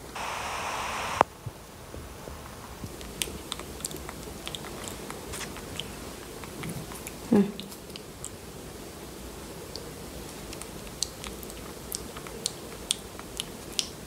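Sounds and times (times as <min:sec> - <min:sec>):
monkey chewing with lip-smacking: 0:03.0 - 0:08.5, 0:09.6 - 0:14.0.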